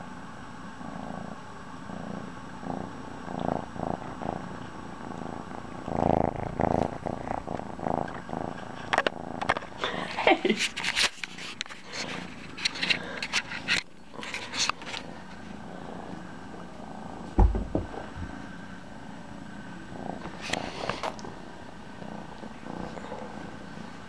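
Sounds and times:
kitten purring: 0.6 - 24.0
loud thud: 17.4 - 18.0.

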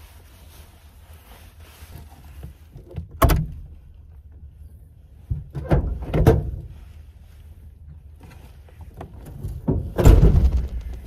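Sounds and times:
knocks and thuds in camper shell: 5.3 - 6.7, 9.4 - 11.0.

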